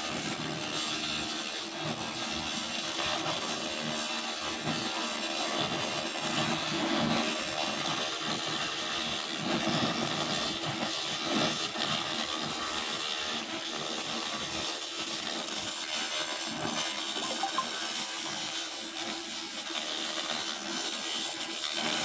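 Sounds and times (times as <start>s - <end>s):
laser cleaner hissing: 15.2s - 20.3s.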